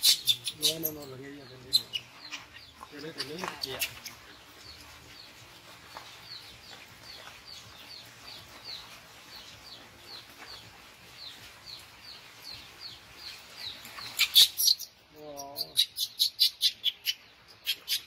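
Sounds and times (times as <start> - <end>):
high-pitched animal chirping: 0.0 - 1.0, 14.2 - 18.0.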